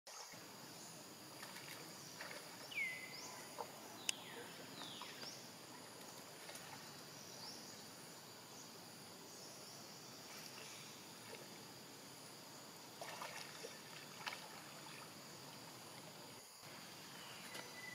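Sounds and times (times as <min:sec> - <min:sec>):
high insect drone: 0:00.1 - 0:17.9
whistled bird calls: 0:02.7 - 0:05.3, 0:17.1 - 0:17.9.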